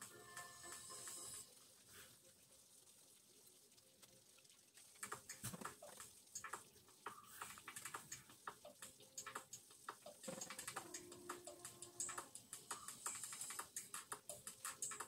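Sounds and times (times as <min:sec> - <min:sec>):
tap water running into sink: 0:04.2 - 0:15.0.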